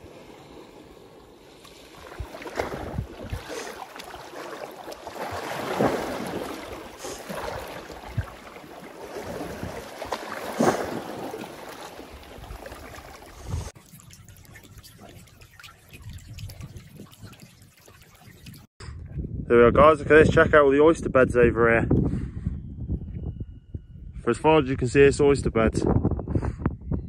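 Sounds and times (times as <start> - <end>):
sea swell sloshing over rocks: 0.0 - 13.8
wind buffeting microphone: 2.1 - 3.6, 18.3 - 27.0.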